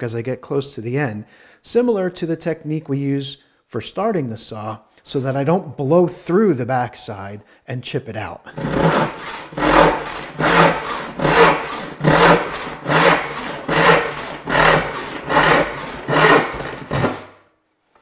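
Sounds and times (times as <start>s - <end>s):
hand saw cutting wood: 8.5s - 17.4s.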